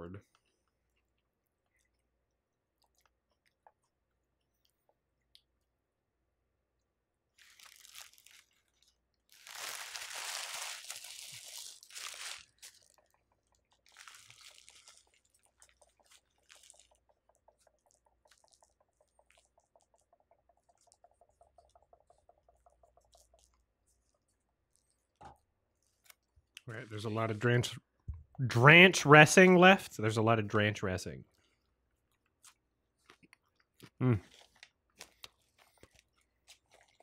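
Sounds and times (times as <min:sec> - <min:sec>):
plastic packaging crinkling: 0:07.4 - 0:17.0, 0:34.3 - 0:37.0.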